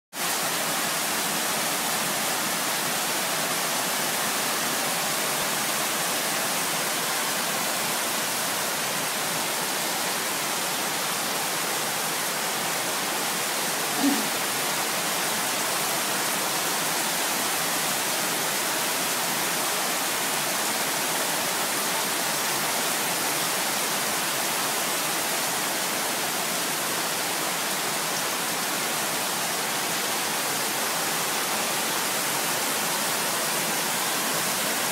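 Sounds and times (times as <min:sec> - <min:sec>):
heavy rain hissing: 0:00.2 - 0:21.8.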